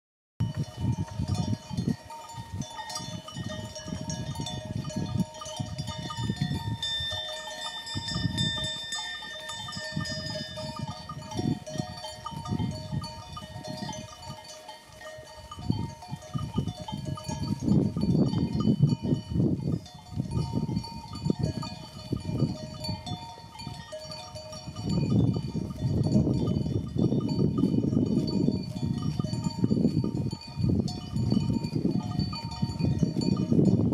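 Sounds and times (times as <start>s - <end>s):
sheep bells clinking: 0.4s - 33.9s
wind buffeting microphone: 0.4s - 33.9s.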